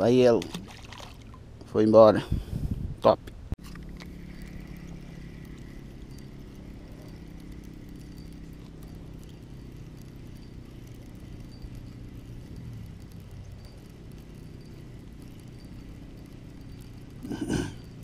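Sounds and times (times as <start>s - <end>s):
fishing reel whirring: 3.6s - 18.0s
faint light ticks: 3.9s - 17.2s.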